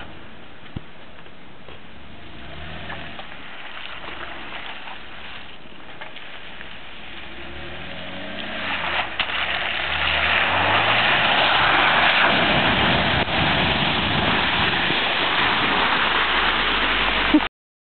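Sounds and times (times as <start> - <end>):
tyres splashing through water: 2.1 - 17.5
car engine revving: 7.1 - 17.4.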